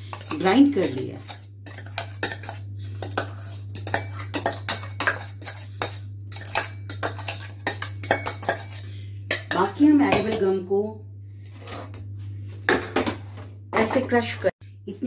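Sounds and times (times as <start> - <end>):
metal jar clinking on steel bowl: 0.1 - 10.4.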